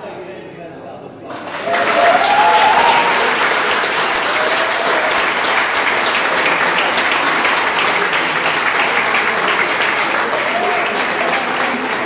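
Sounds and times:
crowd applauding: 0:01.3 - 0:12.0.

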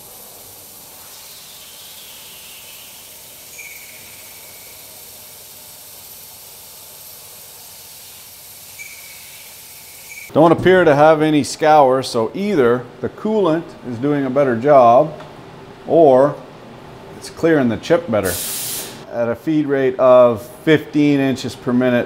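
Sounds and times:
coolant spray hissing: 0:00.0 - 0:10.3, 0:18.2 - 0:19.0.

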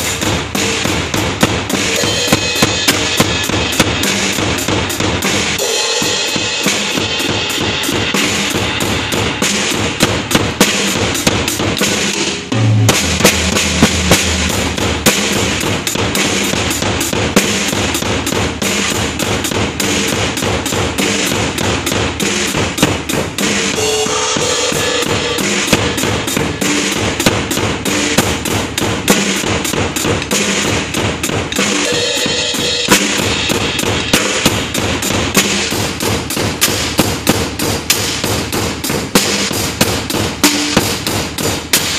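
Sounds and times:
snare and bass drum beat: 0:00.0 - 0:41.9
cymbals ringing: 0:01.9 - 0:04.5, 0:12.3 - 0:15.7, 0:23.4 - 0:27.1, 0:31.8 - 0:34.5.

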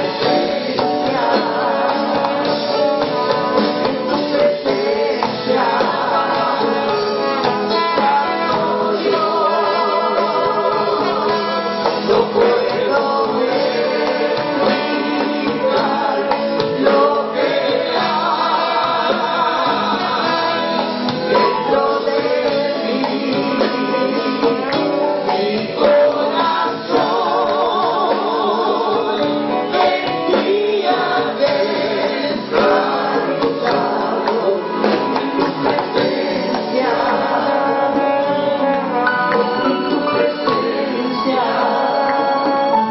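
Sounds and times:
bass: 0:00.0 - 0:42.9
congas: 0:00.0 - 0:42.9
drum kit: 0:00.0 - 0:42.9
singers singing together: 0:00.0 - 0:42.9.

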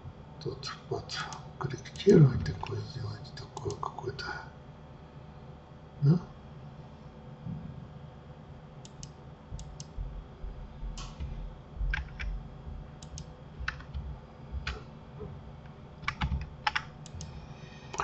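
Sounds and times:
faint low hum: 0:00.0 - 0:18.0
keyboard and mouse clicking: 0:08.8 - 0:10.0, 0:11.9 - 0:12.4, 0:13.0 - 0:14.0, 0:15.6 - 0:17.3.

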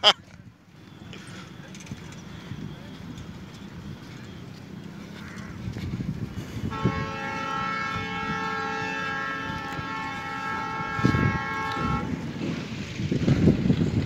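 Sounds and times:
wind rumble on microphone: 0:01.5 - 0:14.0
train horn chord: 0:06.7 - 0:12.2.

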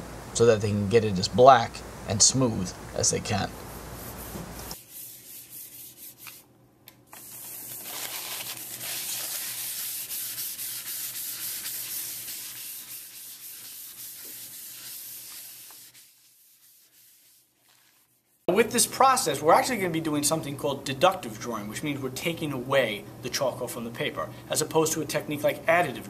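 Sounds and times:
charcoal rubbing on paper: 0:03.9 - 0:06.5, 0:07.2 - 0:18.5.

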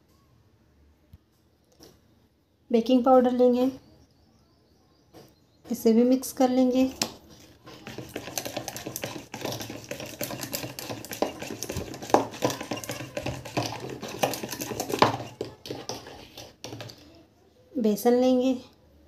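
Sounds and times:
whisk clattering in a bowl: 0:07.0 - 0:17.0.

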